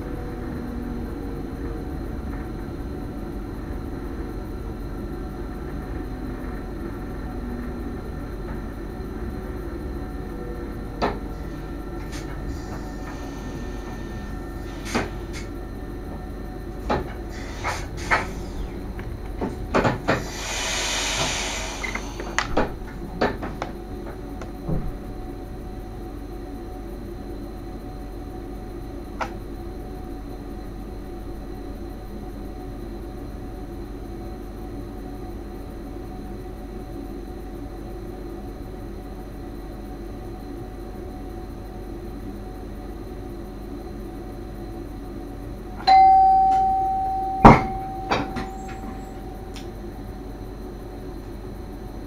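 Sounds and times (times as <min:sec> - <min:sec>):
train running hum: 0:00.0 - 0:52.0
short hiss of air: 0:20.2 - 0:22.3
loud chime: 0:45.9 - 0:49.5.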